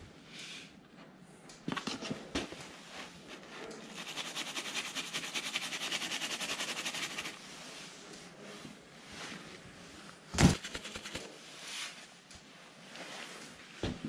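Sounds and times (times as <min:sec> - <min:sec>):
marker scrubbing on fabric: 0:03.8 - 0:07.4, 0:10.4 - 0:11.3.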